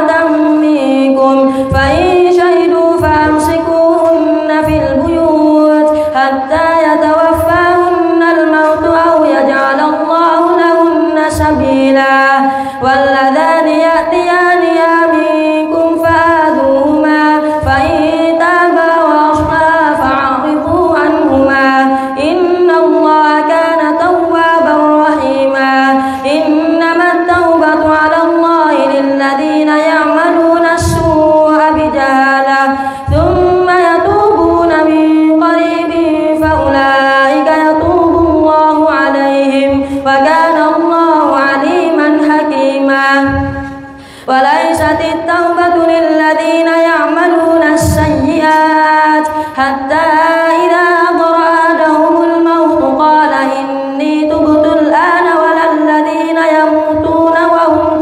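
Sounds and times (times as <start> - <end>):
boy chanting recitation: 0.0 - 58.0
boy breathing: 12.4 - 12.8, 26.0 - 26.2, 32.8 - 33.1, 39.8 - 40.1, 43.6 - 44.3, 49.3 - 49.6.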